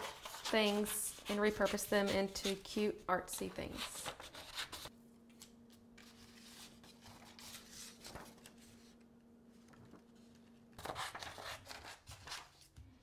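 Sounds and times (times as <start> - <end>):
soft paper rustles: 4.0 - 11.4.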